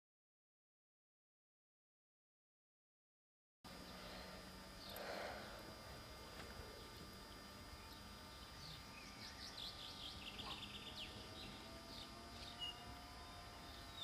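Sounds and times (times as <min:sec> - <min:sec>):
faint bird chirps: 0:06.6 - 0:14.0.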